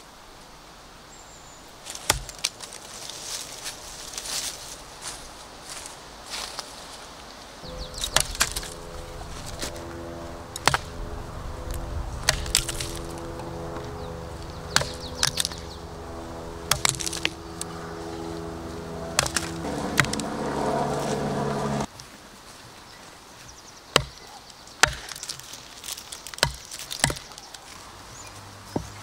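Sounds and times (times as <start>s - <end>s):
background music of held chords: 7.6s - 21.9s
knife chopping wood: 24.0s - 25.2s, 26.4s - 27.3s.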